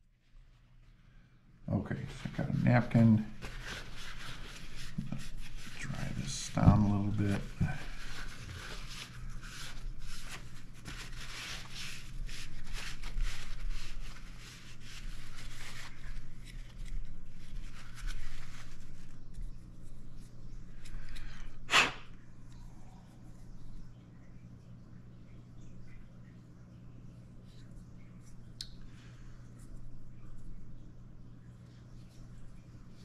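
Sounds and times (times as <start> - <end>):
steady low hum: 0.0 - 33.0
soft handling noises: 0.1 - 21.6, 25.3 - 33.0
paper napkin rubbing plastic: 1.9 - 20.3.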